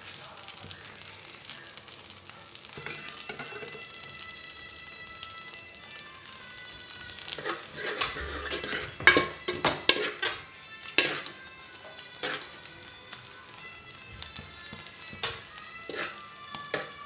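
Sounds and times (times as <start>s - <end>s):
light frying sizzle: 0.0s - 17.0s
metal utensils clinking on cookware: 2.8s - 3.9s, 7.2s - 13.2s, 14.7s - 17.0s.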